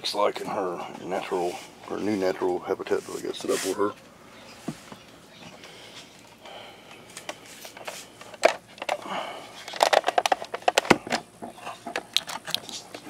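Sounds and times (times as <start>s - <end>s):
handling clicks and rattles: 7.2s - 13.0s.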